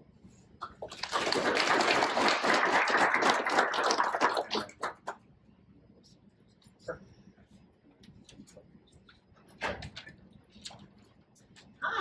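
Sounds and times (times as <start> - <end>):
audience applauding: 0.9 - 5.1.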